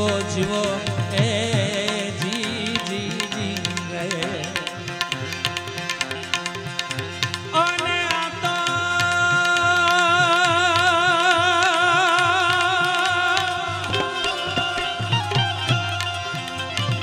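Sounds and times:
harmonium: 0.0 - 17.0
man singing with vibrato: 0.0 - 17.0
tabla strokes: 0.0 - 17.0.

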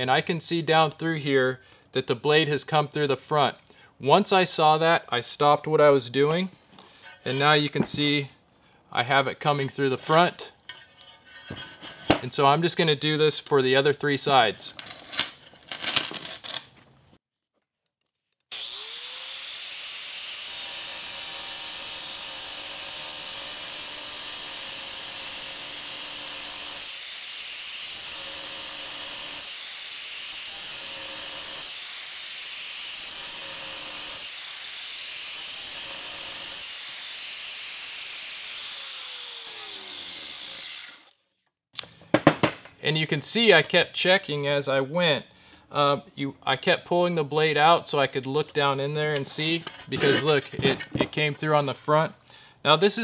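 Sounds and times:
angle grinder cutting tile: 6.9 - 8.1, 18.5 - 41.1, 49.5 - 51.1.

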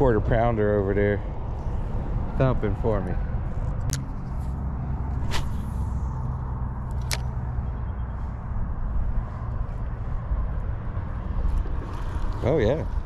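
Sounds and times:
low outdoor rumble: 0.0 - 13.0
sharp clicks: 6.8 - 7.4.

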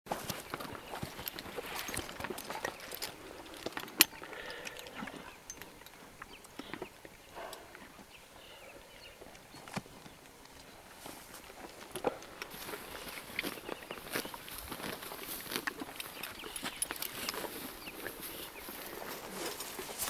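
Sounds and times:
horse hoofbeats in dry grass: 0.1 - 4.3, 9.4 - 20.0.

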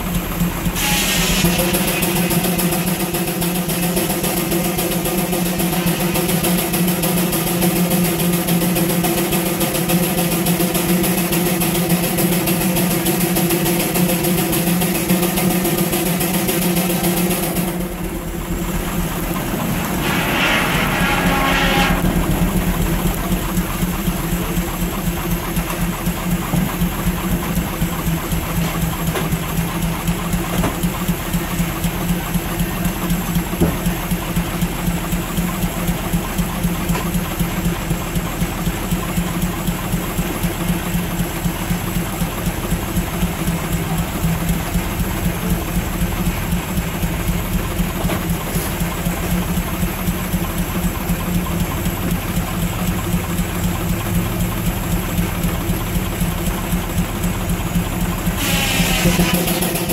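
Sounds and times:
steam engine running: 0.0 - 59.9.

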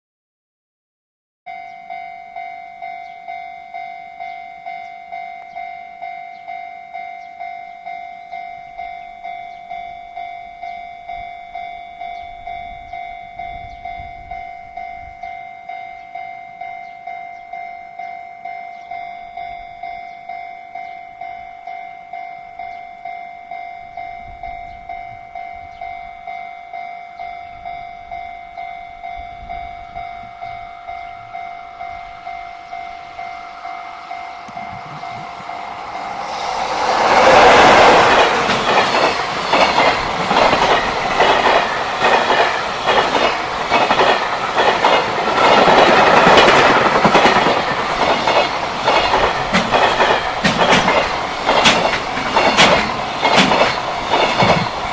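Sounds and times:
approaching freight train: 1.5 - 54.9
level-crossing warning bell: 1.5 - 54.9.

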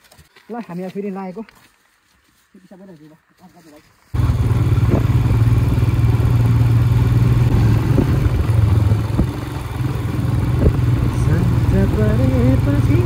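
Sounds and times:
motorcycle engine running: 4.1 - 13.0.

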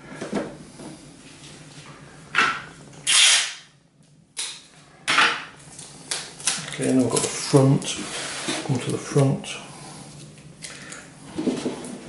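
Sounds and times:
tape ripping off roll: 3.0 - 3.7.

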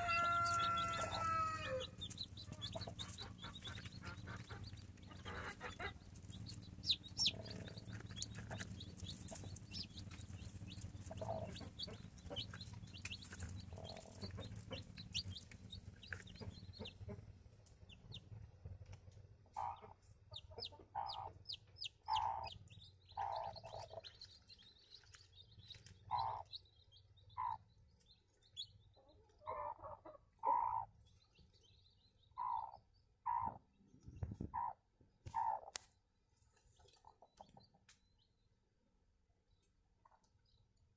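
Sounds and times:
hen clucking softly: 0.0 - 24.2, 25.8 - 26.6, 27.3 - 27.6, 29.0 - 30.9, 32.4 - 35.8
low background rumble: 0.0 - 29.0
chicks peeping: 0.0 - 35.9, 36.5 - 38.4.

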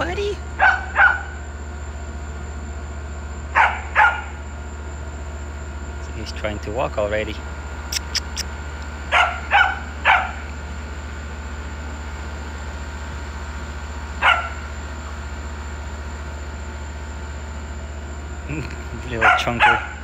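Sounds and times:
puppy yipping: 0.6 - 1.4, 7.9 - 8.5, 9.1 - 10.4.

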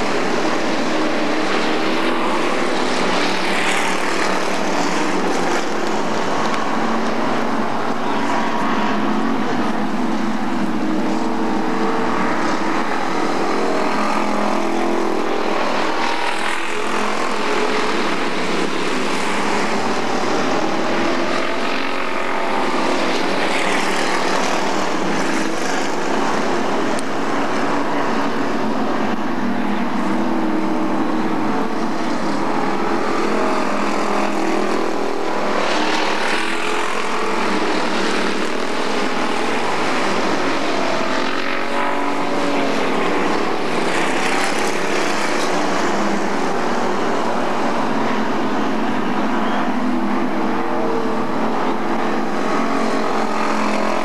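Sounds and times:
race car engines passing: 0.0 - 54.0.

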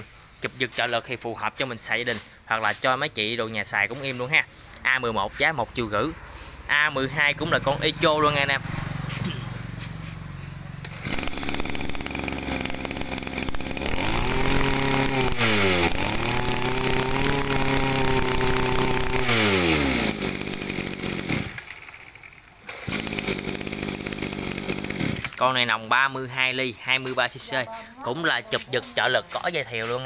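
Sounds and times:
brush cutter engine revving: 6.4 - 25.8.

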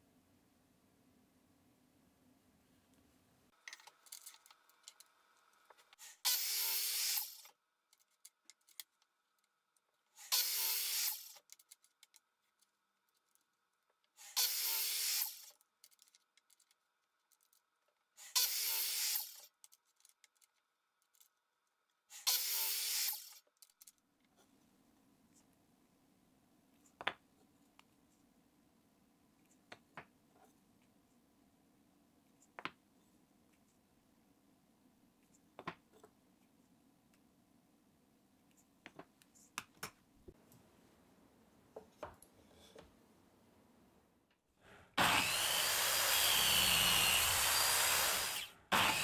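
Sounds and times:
circular saw cutting wood: 44.9 - 49.0.

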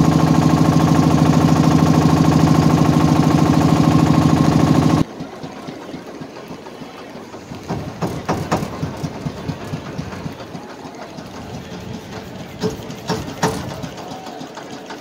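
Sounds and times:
motor boat engine chugging: 0.0 - 15.0
loud sharp knocks: 7.6 - 10.4, 12.5 - 14.0.

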